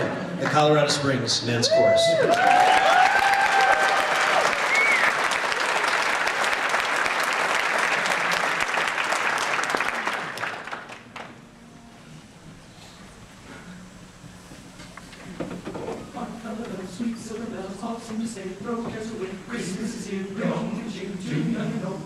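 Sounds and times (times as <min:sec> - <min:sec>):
audience applauding: 0:02.2 - 0:11.5.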